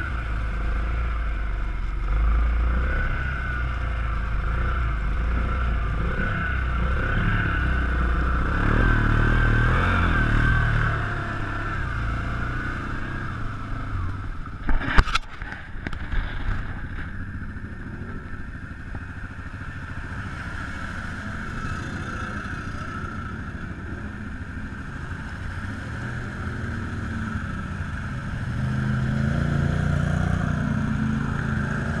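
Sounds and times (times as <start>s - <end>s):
vehicle engine under load: 0.0s - 32.0s
water churning around wheels: 10.3s - 32.0s.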